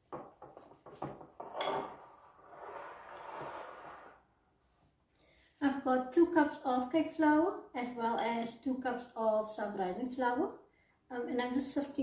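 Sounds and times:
glass bowl scraping on stone: 0:01.4 - 0:04.2.

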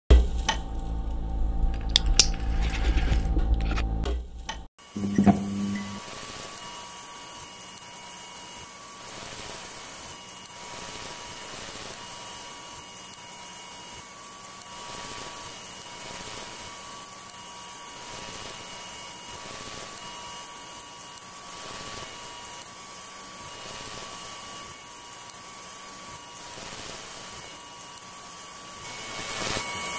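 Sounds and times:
low hum: 0:00.1 - 0:06.0
neon sign buzzing: 0:03.2 - 0:06.0.

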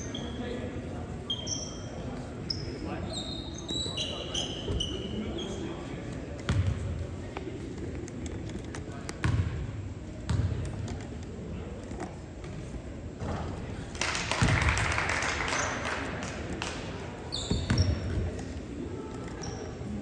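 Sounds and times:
crowd voices: 0:00.0 - 0:20.0
short high squeaks: 0:01.3 - 0:01.9, 0:17.3 - 0:18.0
basketball bouncing on court: 0:06.5 - 0:06.9, 0:09.2 - 0:09.7, 0:10.3 - 0:10.6, 0:17.4 - 0:18.3.

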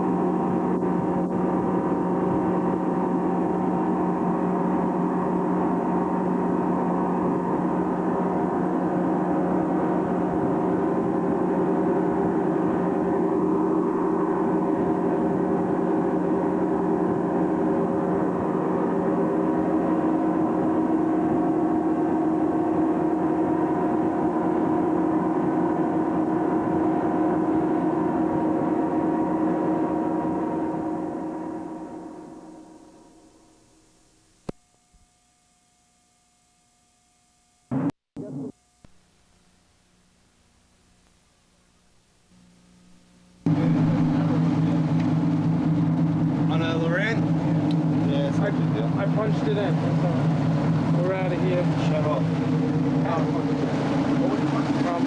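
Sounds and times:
outboard motors droning: 0:00.0 - 0:34.8, 0:41.8 - 0:55.0
wind: 0:00.0 - 0:35.0, 0:43.4 - 0:55.0
rushing water: 0:43.5 - 0:55.0.

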